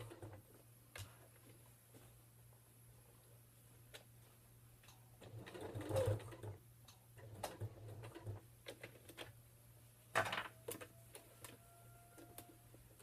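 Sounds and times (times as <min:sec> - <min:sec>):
sewing machine stitching: 0:05.2 - 0:06.6, 0:07.2 - 0:08.4.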